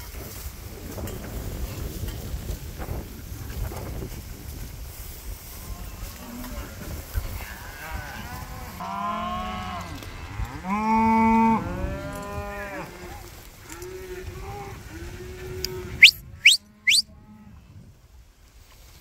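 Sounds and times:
cattle mooing: 0:07.7 - 0:14.7, 0:15.3 - 0:17.0.

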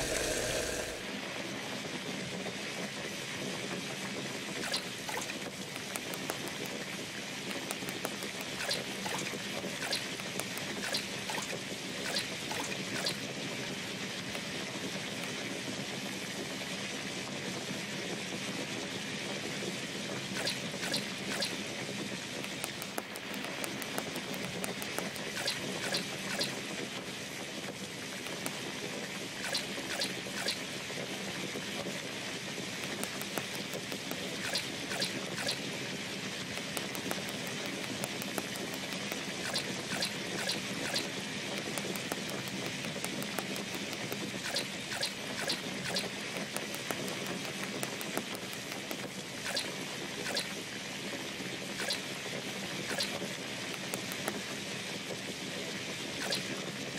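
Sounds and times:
small pops and crackles: 0:04.6 - 0:13.3, 0:20.4 - 0:26.6, 0:27.7 - 0:28.8, 0:29.4 - 0:30.7, 0:32.6 - 0:50.6, 0:52.9 - 0:54.6.

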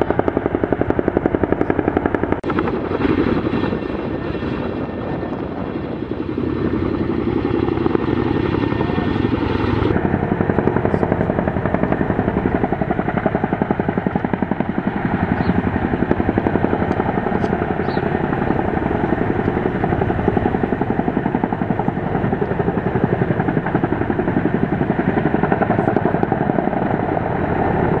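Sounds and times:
helicopter rotor blade beat: 0:00.0 - 0:28.0
turbine engines whining: 0:00.0 - 0:28.0.

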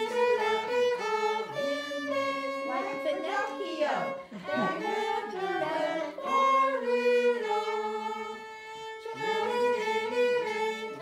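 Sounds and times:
solo violin: 0:00.0 - 0:11.0.

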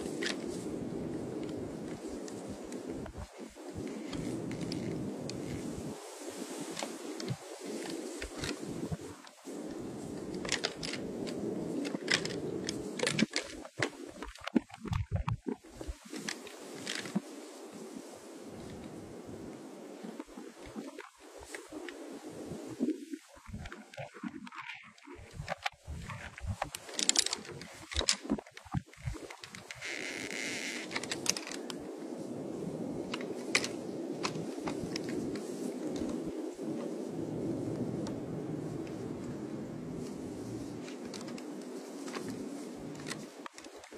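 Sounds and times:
low rustle in dry grass: 0:00.0 - 0:43.9
steady background hiss: 0:00.0 - 0:43.9
deer antlers clacking: 0:06.7 - 0:17.2, 0:23.5 - 0:31.8.

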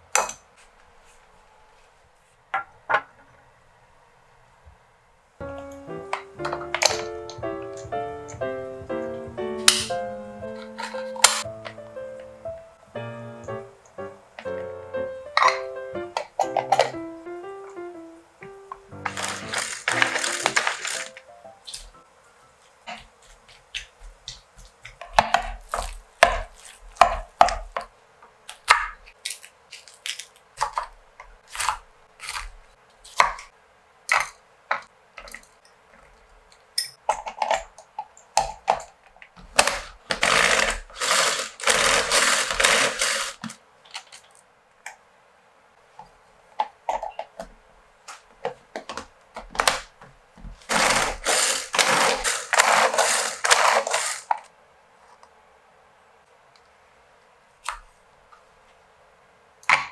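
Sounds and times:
pull-cord food chopper whirring: 0:19.1 - 0:21.1, 0:39.6 - 0:43.5, 0:50.6 - 0:54.4.

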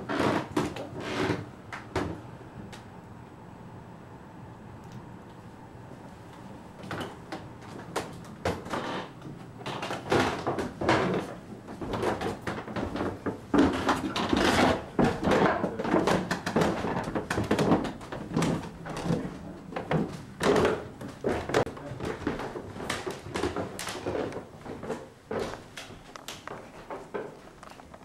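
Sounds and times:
footsteps: 0:05.9 - 0:28.0.

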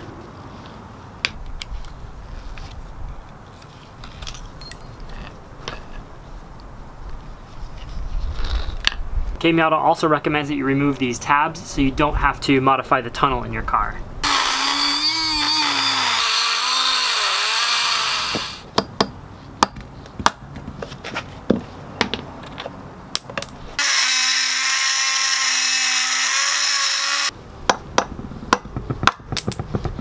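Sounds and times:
rotary tool cutting metal: 0:14.2 - 0:18.6, 0:23.8 - 0:27.3.

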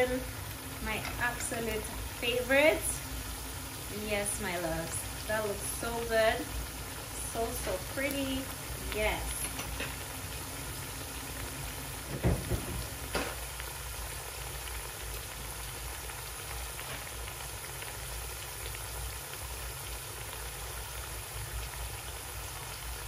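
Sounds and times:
food sizzling in oil: 0:00.0 - 0:23.0
soft knocks: 0:12.1 - 0:13.4.

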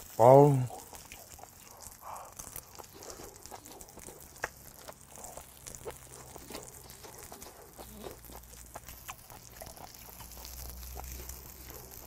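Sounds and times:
wet mouth chewing: 0:00.0 - 0:12.0.

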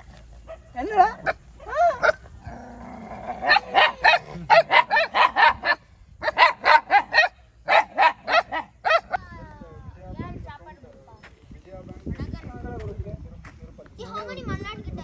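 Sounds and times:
puppy barking in high-pitched yaps: 0:03.5 - 0:09.2.

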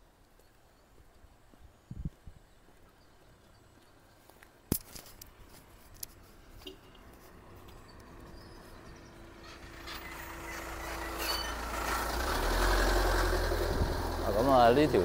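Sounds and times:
truck engine rumble: 0:06.2 - 0:15.0.

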